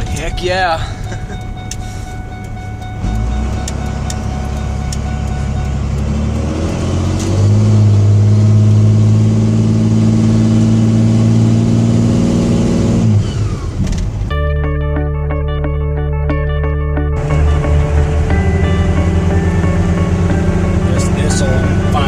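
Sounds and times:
music: 0.0 - 6.0, 14.3 - 22.0
diesel engine while driving: 0.0 - 14.4, 17.2 - 22.0.

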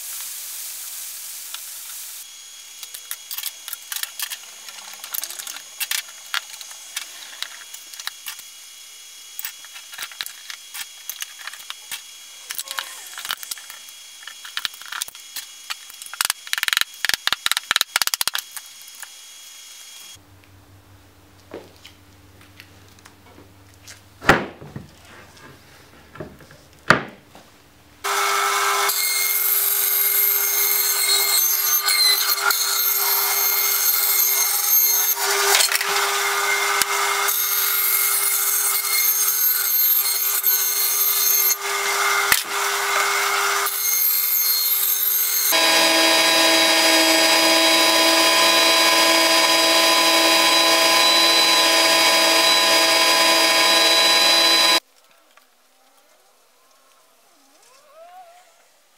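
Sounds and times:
bandsaw cutting wood: 28.0 - 54.8
spindle sander sanding wood: 39.0 - 54.8.

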